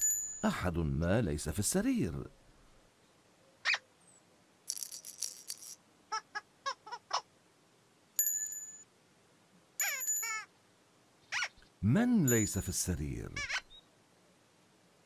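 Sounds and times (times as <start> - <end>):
shaken rattle: 4.7 - 5.8
cartoon chirp: 9.8 - 10.5, 11.3 - 11.6.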